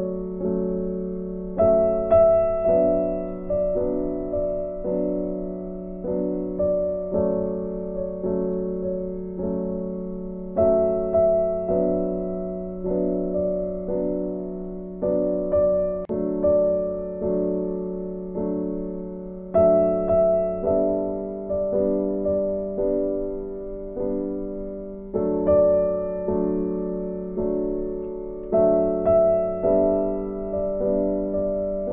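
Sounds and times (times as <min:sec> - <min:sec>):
gentle piano melody: 0:00.0 - 0:31.9.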